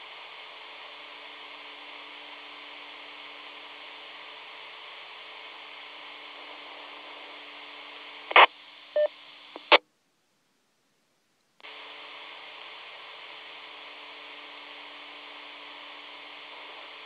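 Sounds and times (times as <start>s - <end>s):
radio hiss and hum: 0.0s - 9.9s, 11.6s - 17.0s
radio squelch burst: 8.3s - 9.8s.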